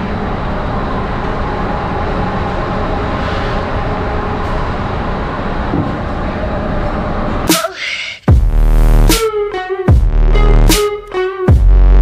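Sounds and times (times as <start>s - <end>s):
engine room rumble: 0.0s - 7.5s
faint hum tones: 0.0s - 9.0s.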